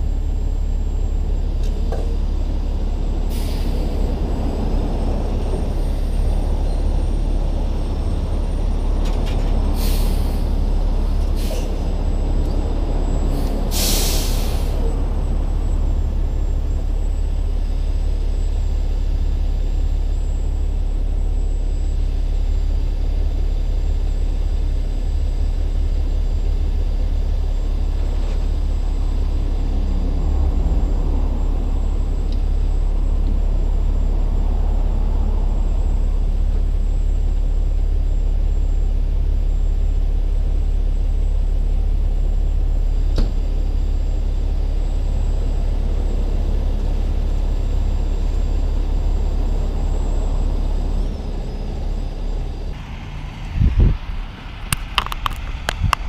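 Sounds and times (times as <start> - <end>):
truck diesel engine rumble: 0.0 - 56.0.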